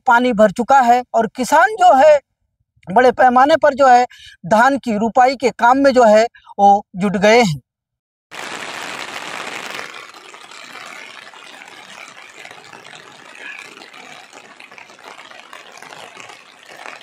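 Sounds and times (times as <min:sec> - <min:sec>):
steady rain falling: 0:08.4 - 0:17.0.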